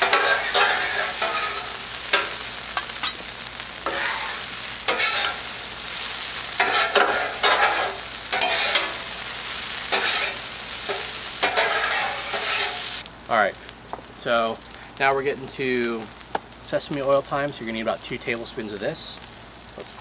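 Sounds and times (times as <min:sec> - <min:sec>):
metal spatulas scraping griddle: 0:00.0 - 0:05.6, 0:06.5 - 0:09.2, 0:09.8 - 0:13.0
griddle sizzling: 0:00.0 - 0:20.0.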